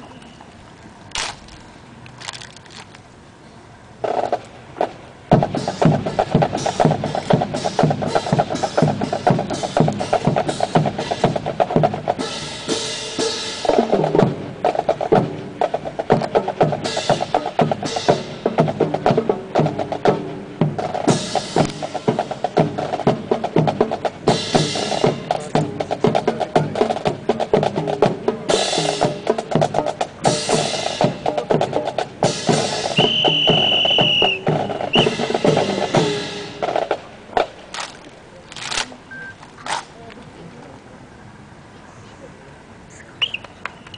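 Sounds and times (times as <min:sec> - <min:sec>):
snare drums marching cadence: 0:04.0 - 0:39.9
drum crashing accents: 0:05.3 - 0:37.7.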